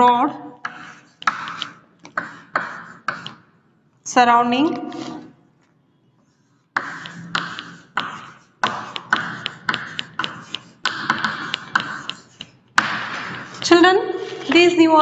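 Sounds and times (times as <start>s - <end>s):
chalk tapping and scratching on board: 0.6s - 3.5s, 6.3s - 14.7s.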